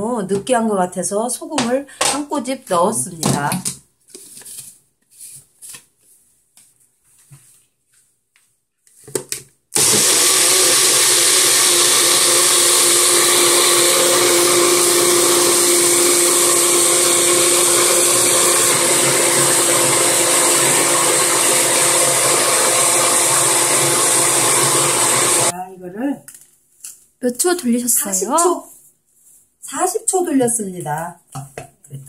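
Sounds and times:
blender motor running: 9.8 - 25.5.

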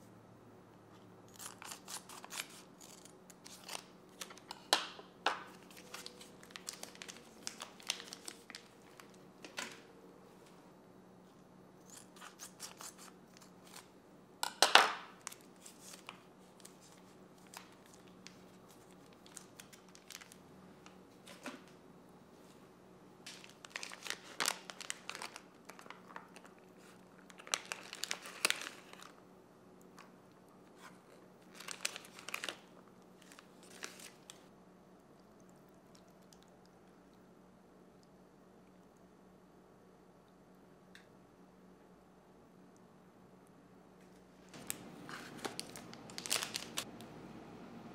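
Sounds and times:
plastic packet ripping: 1.3 - 9.8, 14.7 - 20.4, 23.3 - 29.2, 30.8 - 34.4, 44.6 - 47.0
plastic packet crinkling: 1.5 - 9.8, 15.0 - 20.4, 23.3 - 29.2, 31.4 - 34.5, 44.6 - 47.0.

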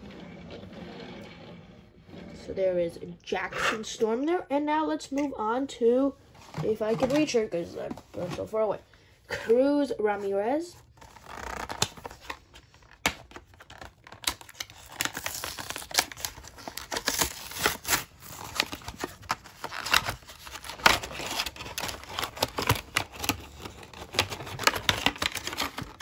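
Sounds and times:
cardboard tearing: 10.9 - 26.0
plastic packaging crinkling: 10.9 - 26.0.

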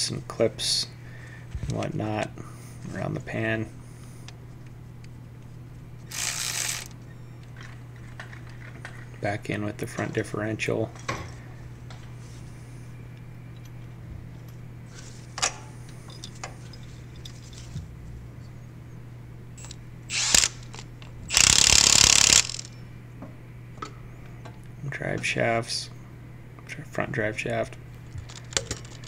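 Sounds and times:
low shop hum: 0.0 - 29.0
power tool bursts: 6.1 - 6.9, 19.6 - 22.7.

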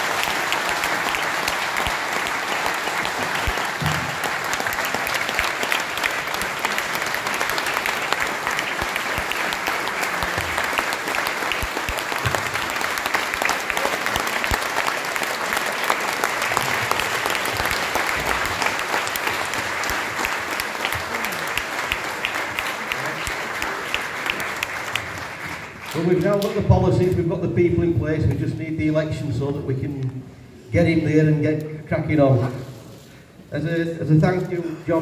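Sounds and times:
audience applauding: 0.0 - 26.8.

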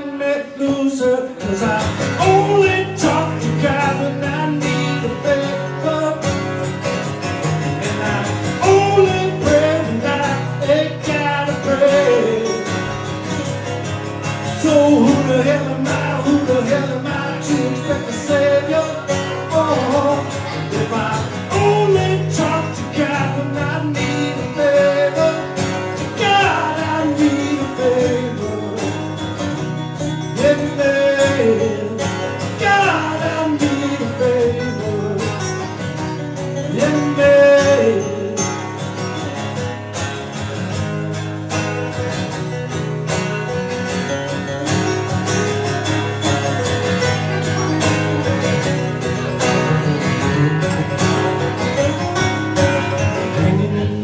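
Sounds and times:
man singing: 0.0 - 7.0, 7.6 - 13.2, 14.4 - 38.9, 51.8 - 54.0
acoustic guitars strummed: 0.0 - 54.0.

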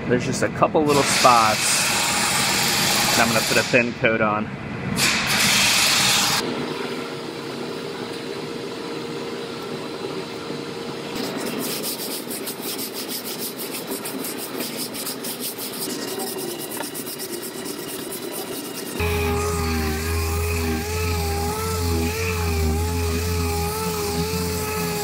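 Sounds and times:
sandpaper rasping strokes: 11.2 - 25.0.

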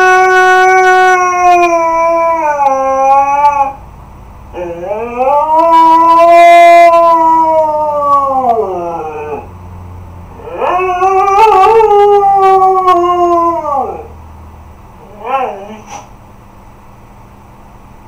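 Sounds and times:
husky howling: 0.0 - 3.8, 4.5 - 9.5, 10.4 - 14.2, 15.0 - 15.9.

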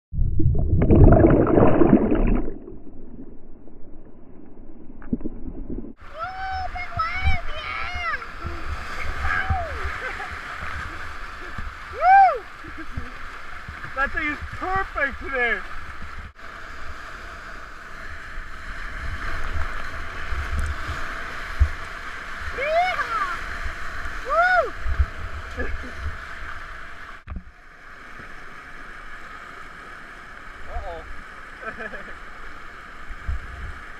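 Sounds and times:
muffled underwater churning bubbles: 0.1 - 6.0
whitewater rushing and splashing: 6.0 - 16.6, 18.8 - 27.1.

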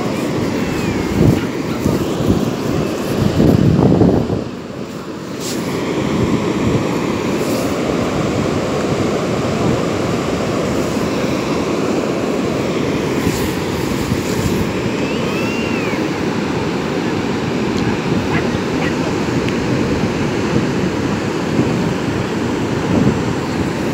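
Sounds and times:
wind buffeting microphone: 0.0 - 4.8, 5.7 - 23.9
ocean surf rushing: 0.0 - 23.9.

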